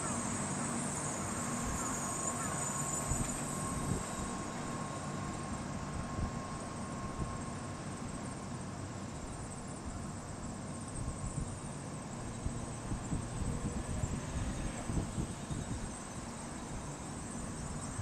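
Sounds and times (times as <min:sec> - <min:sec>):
distant road traffic rumble: 0:00.0 - 0:18.0.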